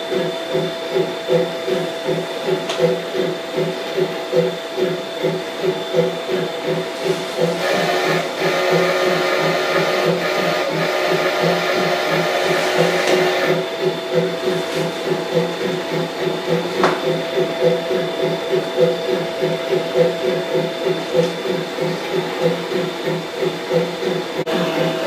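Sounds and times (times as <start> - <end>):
model train motor whine: 24.5 - 25.0.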